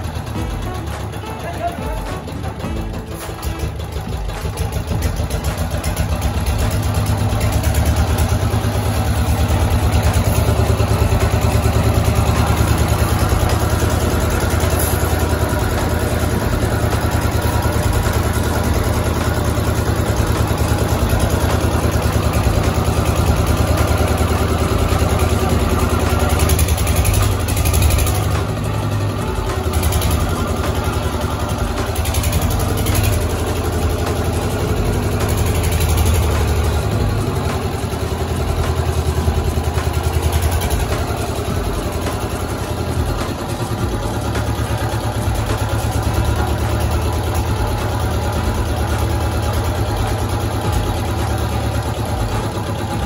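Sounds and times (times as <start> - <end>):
engine-driven water pump running: 0.0 - 53.0.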